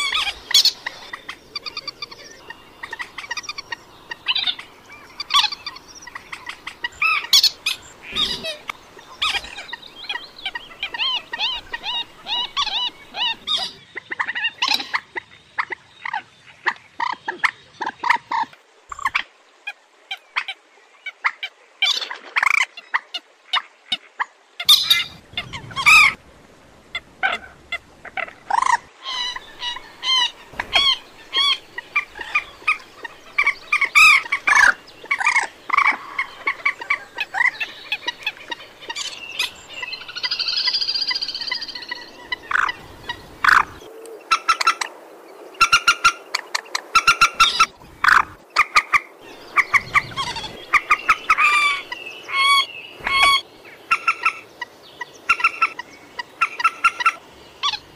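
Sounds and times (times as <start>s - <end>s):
moorhen trilling call: 0.0s - 13.8s, 26.9s - 44.9s, 45.6s - 57.9s
moorhen clucking calls: 0.0s - 19.3s, 23.9s - 26.2s, 26.8s - 44.9s, 45.6s - 57.9s.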